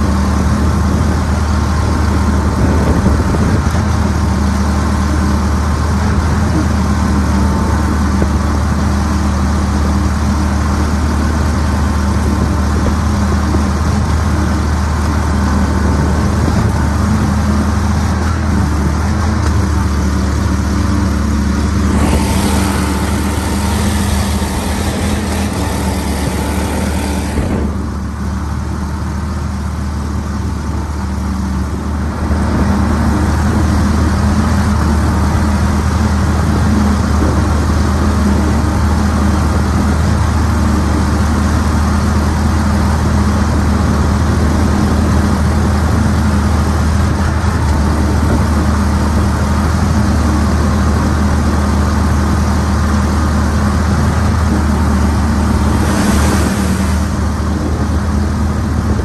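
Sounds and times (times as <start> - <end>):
outboard motor running: 0.0 - 59.0
loud hiss: 21.6 - 28.3, 55.0 - 58.2.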